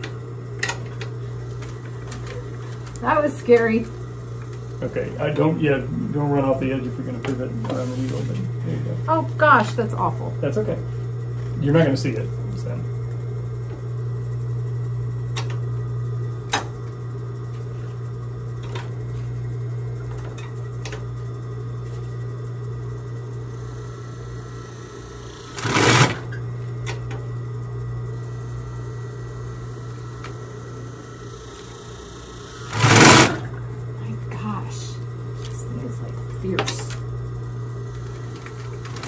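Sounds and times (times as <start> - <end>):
sewing machine motor humming: 22.7 - 27.2, 28.1 - 39.0
sewing machine clicks: 32.7 - 33.4.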